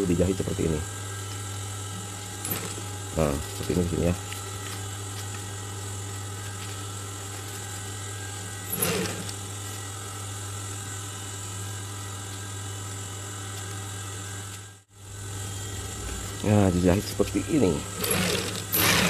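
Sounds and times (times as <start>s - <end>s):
sewing machine running: 8.7s - 9.4s, 18.0s - 19.0s.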